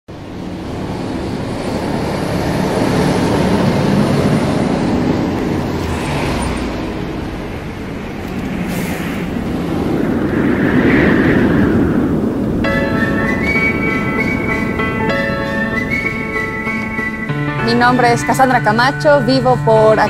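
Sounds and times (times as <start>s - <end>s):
city traffic hum: 0.1s - 20.0s.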